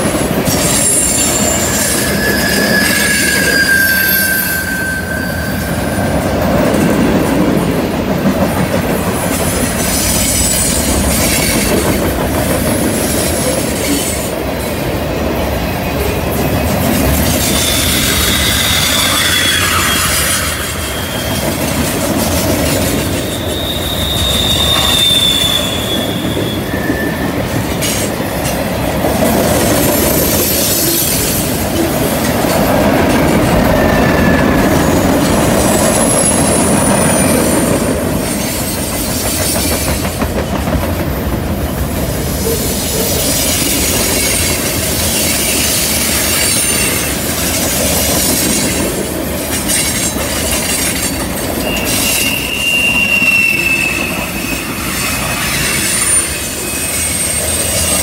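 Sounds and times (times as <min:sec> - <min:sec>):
freight train wheels rumbling: 0:00.0 - 0:58.0
high-pitched wheel squeals: 0:00.5 - 0:06.2, 0:17.4 - 0:21.8, 0:23.0 - 0:27.5, 0:51.5 - 0:58.0.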